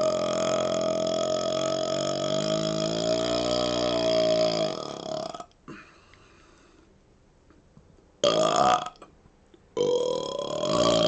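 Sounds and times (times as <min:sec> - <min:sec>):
man burping: 0:00.0 - 0:06.0, 0:08.2 - 0:09.1, 0:09.8 - 0:11.0.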